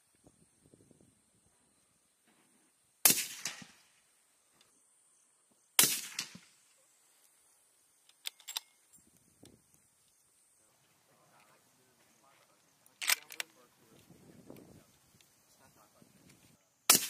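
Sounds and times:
echoing gunshots: 0:03.0 - 0:03.9, 0:05.8 - 0:06.5.

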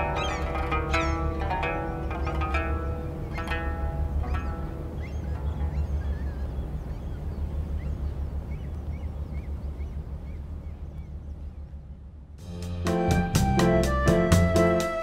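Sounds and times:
ferry engine rumbling: 0:00.0 - 0:15.0
gulls calling: 0:00.0 - 0:15.0
piano music: 0:12.4 - 0:15.0.

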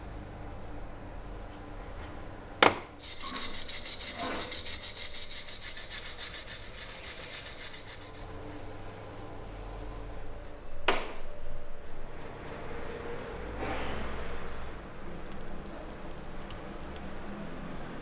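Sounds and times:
hand tool scraping: 0:03.0 - 0:08.3.

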